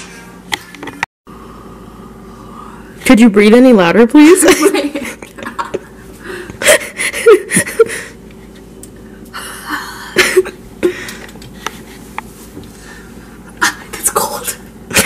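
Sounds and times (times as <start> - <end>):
woman laughing and gasping: 5.8 - 8.2.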